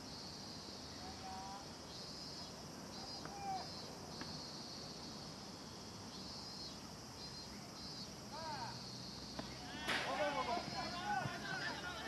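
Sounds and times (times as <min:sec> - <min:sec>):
insect chorus trilling: 0:00.0 - 0:12.0
faint distant shout: 0:03.0 - 0:03.8, 0:08.3 - 0:08.8, 0:09.4 - 0:12.0.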